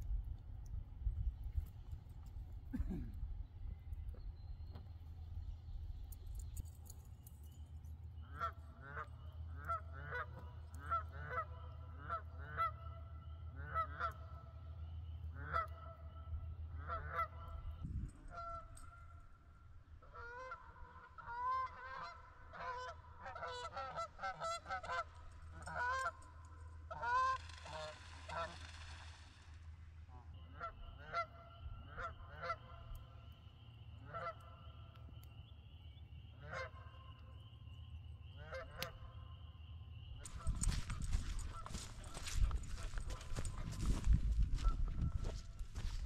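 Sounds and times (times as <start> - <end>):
geese honking: 8.2 - 29.2, 30.1 - 46.0.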